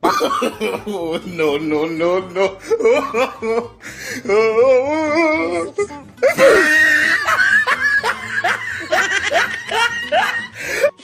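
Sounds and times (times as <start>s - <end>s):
music: 0.0s - 11.0s
loud laughter with yelps: 6.2s - 10.9s.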